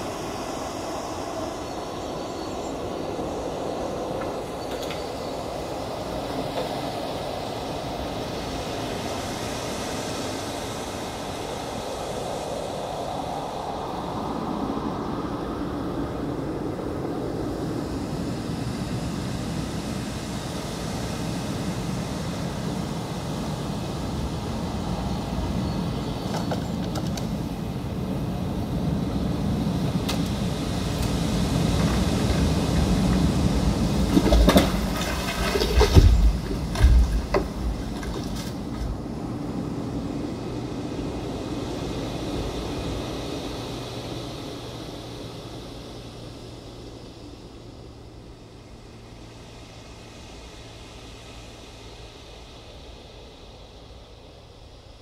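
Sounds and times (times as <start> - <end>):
low mechanical rumble: 21.8 - 55.0
sharp knocks: 34.2 - 38.8.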